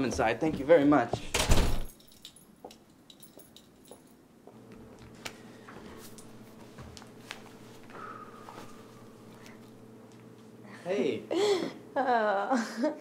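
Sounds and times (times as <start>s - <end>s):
light footsteps: 0.0s - 1.4s, 2.6s - 10.6s
faint steady hum: 0.0s - 13.0s.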